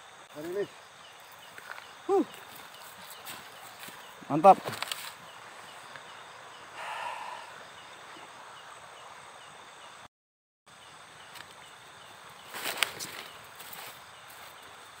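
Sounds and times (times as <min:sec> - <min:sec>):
steady rushing hiss: 0:00.0 - 0:10.1.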